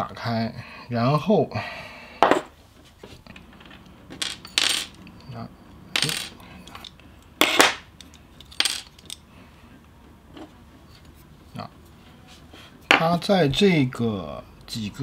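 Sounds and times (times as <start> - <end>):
small parts clicking and clinking: 5.9 - 9.3.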